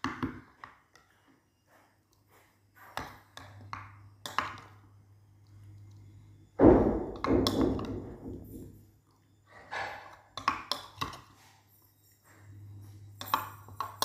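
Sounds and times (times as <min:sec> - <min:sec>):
metal spoon scraping glass bowl: 0:09.8 - 0:14.0.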